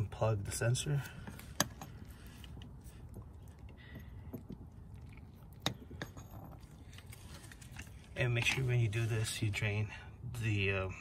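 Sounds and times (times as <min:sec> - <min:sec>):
faint handling noises: 0:00.6 - 0:09.6.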